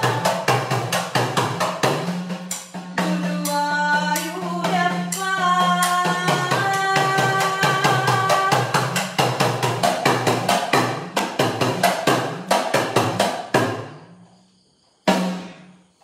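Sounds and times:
woman singing: 0:00.0 - 0:00.8, 0:02.8 - 0:09.1.

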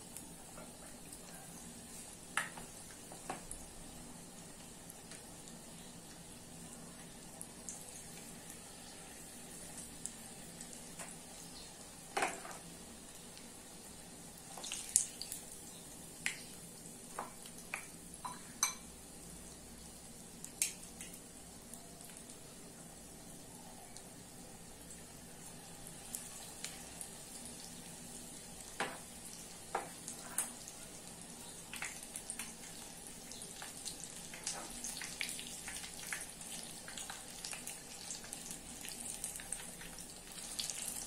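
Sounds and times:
hot oil sizzling in a saucepan: 0:00.0 - 0:41.0
metal spoons clinking against pan: 0:18.2 - 0:18.9.

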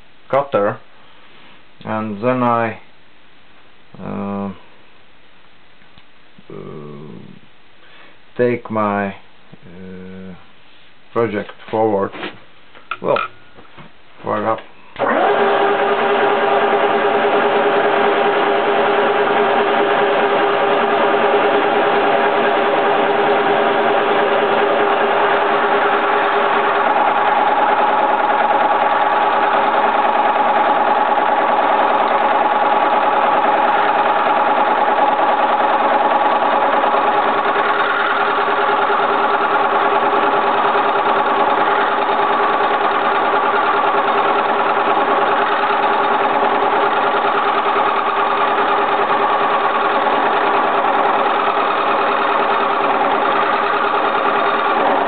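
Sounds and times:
milling machine humming: 0:15.0 - 0:55.0.

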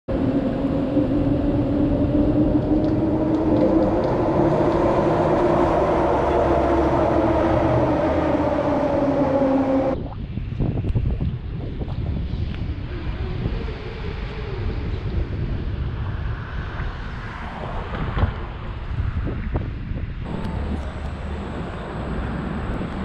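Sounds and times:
wind on microphone: 0:00.1 - 0:23.0
train motor two-tone hum: 0:00.8 - 0:10.0, 0:20.3 - 0:23.0.

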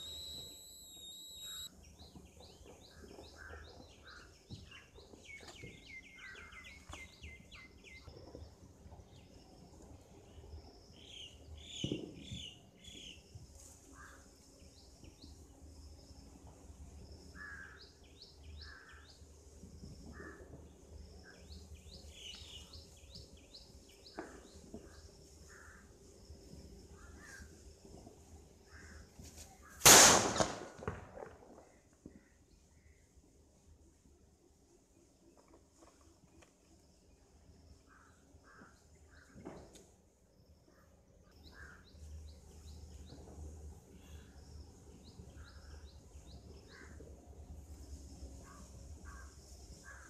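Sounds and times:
small birds chirping: 0:00.0 - 0:13.7.

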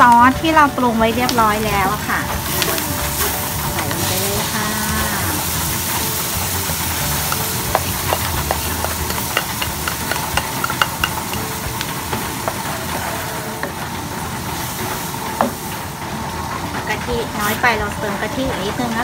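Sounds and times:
sauce sizzling in a wok: 0:00.1 - 0:18.4
spatula scraping and tapping pan: 0:07.1 - 0:13.8.

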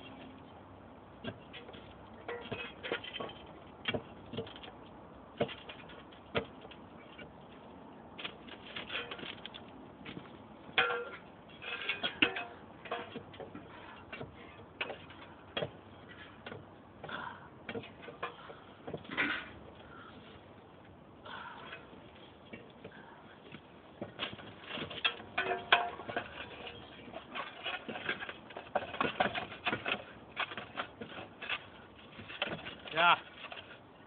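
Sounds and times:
shovels scraping in gravel ballast: 0:24.4 - 0:33.8.

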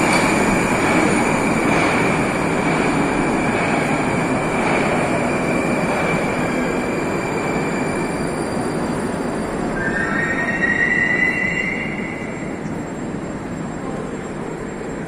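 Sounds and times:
train wheels rumbling: 0:00.0 - 0:15.0
high wheel squeal: 0:06.5 - 0:13.2.

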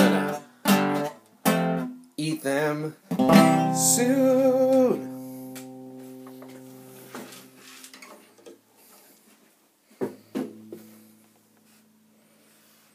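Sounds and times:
acoustic guitar chord ringing: 0:03.2 - 0:07.6.

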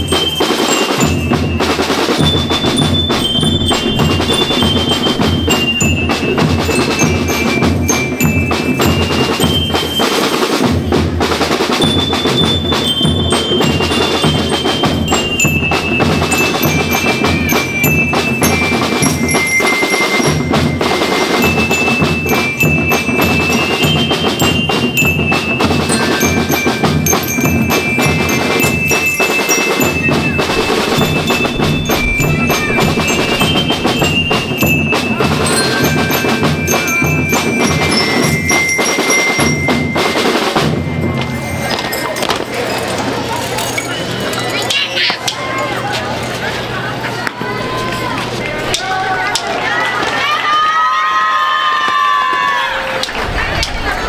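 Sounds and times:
snare and bass drums beat: 0:00.0 - 0:41.7
bell lyres melody: 0:00.0 - 0:49.2.

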